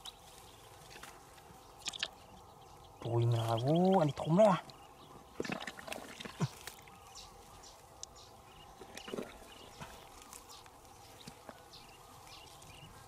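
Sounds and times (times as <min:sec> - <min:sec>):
hands digging in wet mud: 0:05.4 - 0:06.9, 0:08.8 - 0:11.5.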